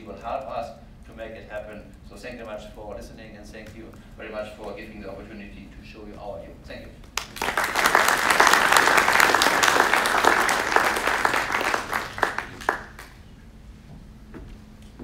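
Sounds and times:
audience applauding: 7.2 - 13.3.

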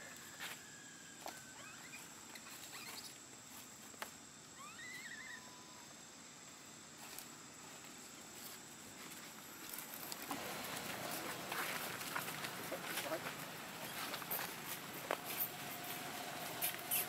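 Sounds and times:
rustling in dry leaves: 6.9 - 17.0
dry leaves crackling: 8.3 - 17.0.

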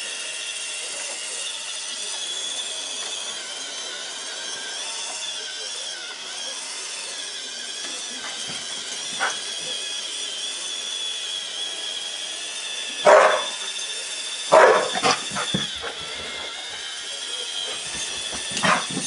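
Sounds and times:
robot vacuum whine: 0.0 - 19.0
dog barking: 9.2 - 9.5, 13.0 - 13.6, 14.5 - 16.0, 18.5 - 19.0.

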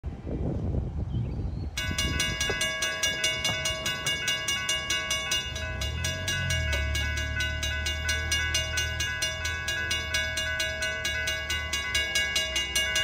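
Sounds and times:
railroad crossing bells ringing: 1.7 - 13.0.

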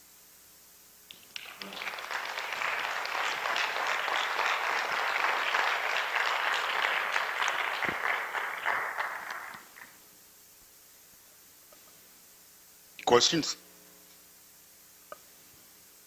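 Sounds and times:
audience applauding: 1.1 - 10.0.

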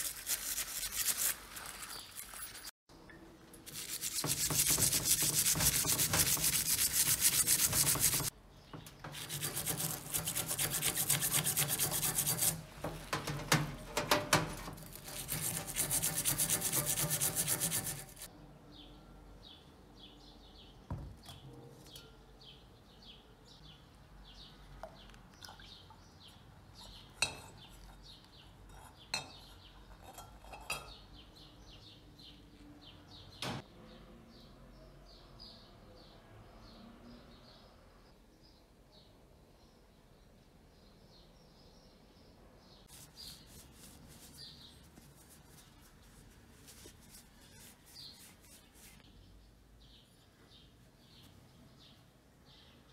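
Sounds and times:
wire brush scrubbing metal: 0.0 - 2.7, 3.6 - 8.3, 9.0 - 18.3, 42.9 - 49.0.

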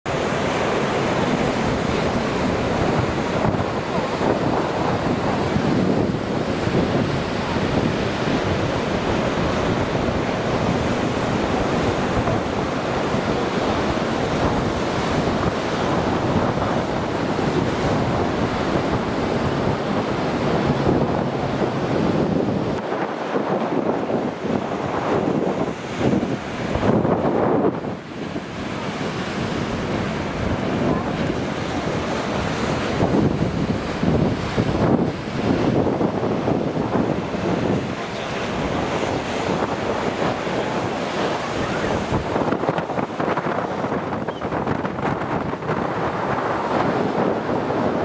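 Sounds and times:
storm surf breaking: 0.1 - 48.0
wind buffeting microphone: 0.1 - 48.0.

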